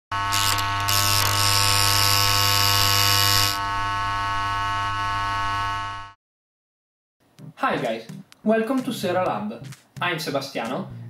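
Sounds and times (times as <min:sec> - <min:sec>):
electric hum: 0:00.1 - 0:06.2.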